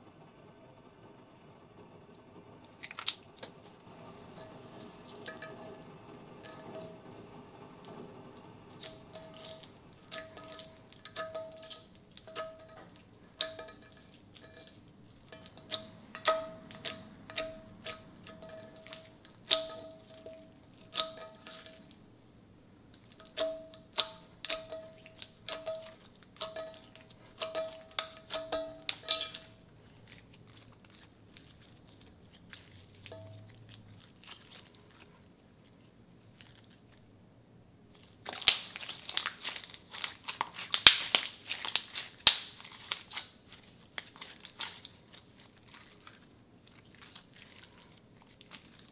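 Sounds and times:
slime squishing: 2.7 - 6.9, 8.6 - 22.1, 22.8 - 37.1, 37.8 - 48.9
slime clicking and popping: 38.2 - 46.2.

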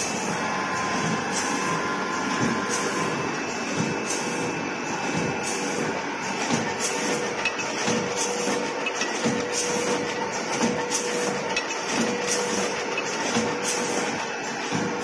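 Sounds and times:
machine hisses and clicks: 0.0 - 15.0
packing machine humming: 0.0 - 15.0.

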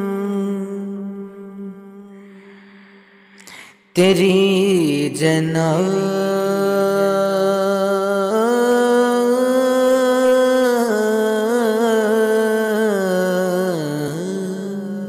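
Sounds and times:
man singing unaccompanied: 4.0 - 15.0.

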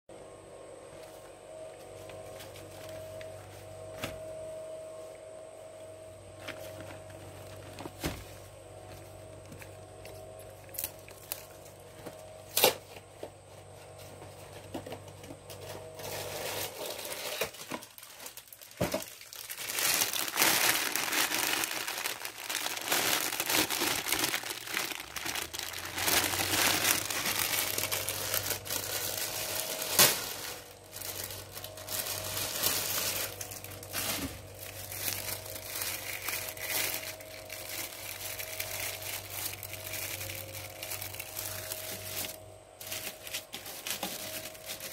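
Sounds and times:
faint steady hum: 0.1 - 44.9
packaging crinkling and tearing: 9.3 - 13.0, 15.5 - 44.9.

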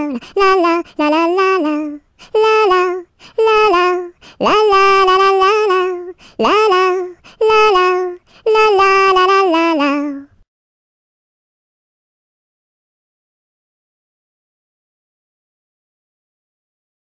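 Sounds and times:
person singing la la la: 0.0 - 10.4.

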